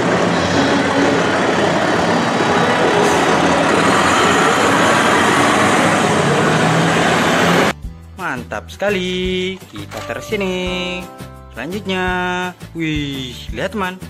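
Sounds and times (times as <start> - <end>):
fire truck engine: 0.0 - 7.7.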